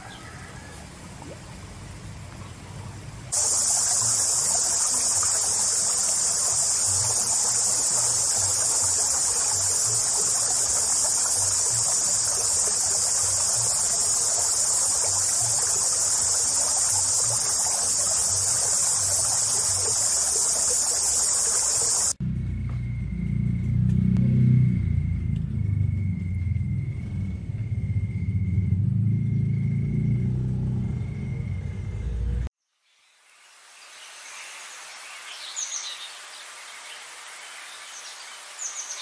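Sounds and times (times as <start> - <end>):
shrill insect chorus: 3.3 - 32.4.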